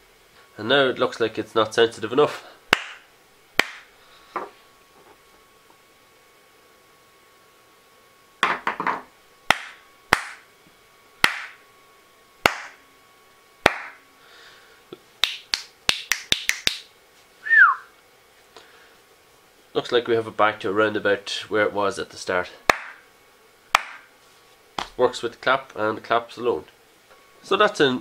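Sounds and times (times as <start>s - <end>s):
hand claps: 2.7s - 3.0s, 3.6s - 3.9s, 9.5s - 10.5s, 11.2s - 11.6s, 12.4s - 12.8s, 13.6s - 14.0s, 15.2s - 16.9s, 22.7s - 23.0s, 23.8s - 24.1s
finger snaps: 15.2s - 16.9s
falling whistle: 17.4s - 17.9s.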